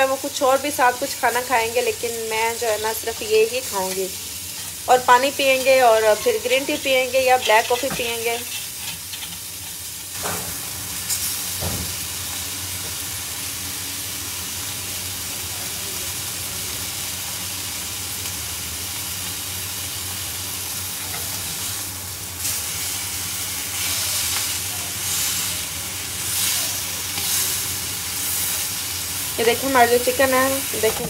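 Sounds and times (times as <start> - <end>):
chicken sizzling on grill pan: 0.0 - 31.0
metal tongs clacking on pan: 6.5 - 9.8.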